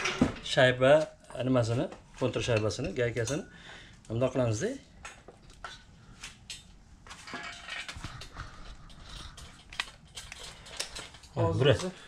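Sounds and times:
small metal hardware clinking: 0:06.5 - 0:11.9.

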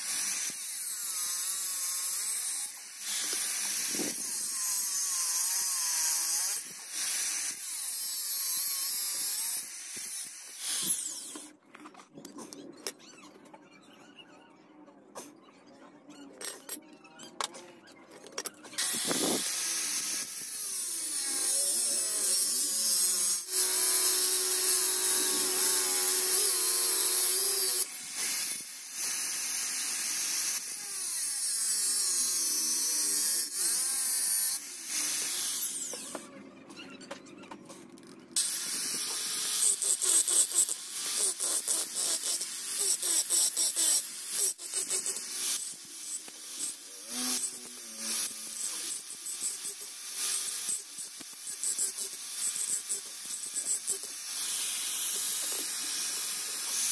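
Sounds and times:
angle grinder whine: 0:18.8 - 0:30.7, 0:38.4 - 0:56.9.

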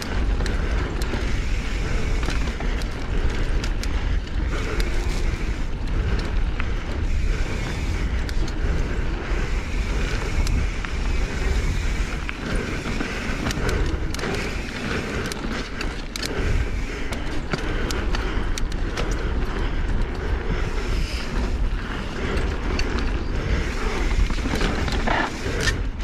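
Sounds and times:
bike clicks and rattles: 0:00.0 - 0:26.0
bike tyres rumbling on dirt: 0:00.0 - 0:26.0
wind on microphone: 0:00.0 - 0:26.0.

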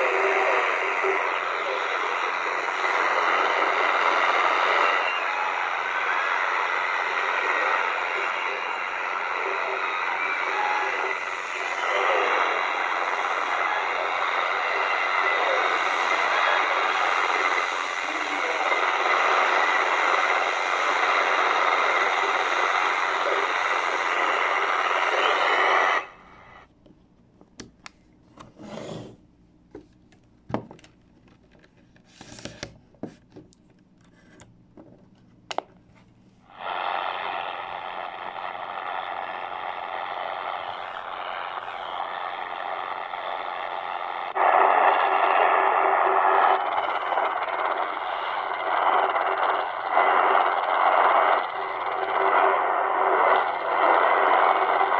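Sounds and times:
distorted radio jamming signal: 0:00.0 - 0:26.7, 0:36.5 - 0:54.9
radio handling clicks and rubbing: 0:29.8 - 0:36.2.

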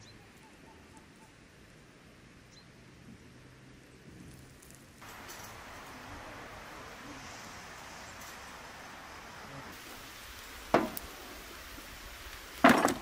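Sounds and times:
faint outdoor hiss: 0:00.0 - 0:13.0
carcass thudding onto metal tray: 0:12.6 - 0:13.0.

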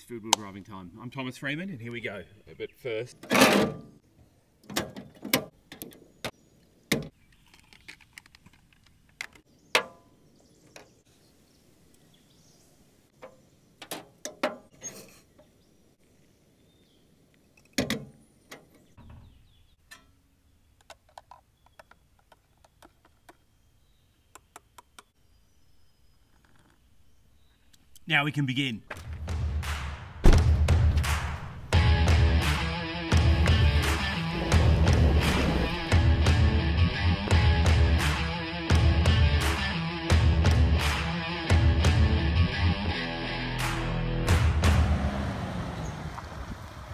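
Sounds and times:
camp stove and pot clunking: 0:13.1 - 0:15.5, 0:19.8 - 0:20.2
loud knock: 0:30.2 - 0:31.5.

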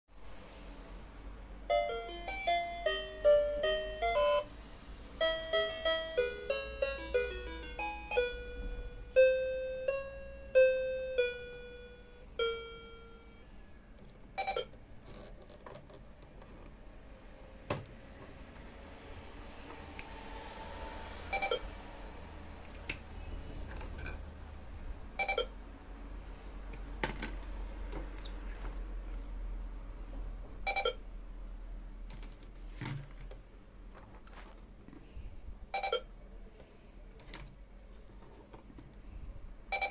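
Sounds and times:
toy scanner beep: 0:01.7 - 0:04.5, 0:05.2 - 0:13.4, 0:14.4 - 0:14.7, 0:21.3 - 0:21.7, 0:25.2 - 0:25.6, 0:30.7 - 0:31.0, 0:35.7 - 0:36.1
electronic beeping tune: 0:25.2 - 0:25.5.

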